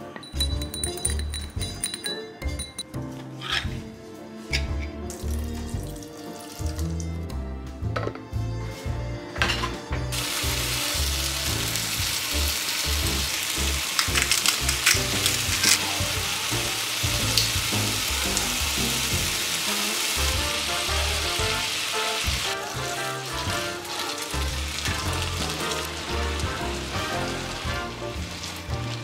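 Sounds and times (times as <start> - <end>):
bean sprouts sizzling in a pan: 10.1 - 29.0.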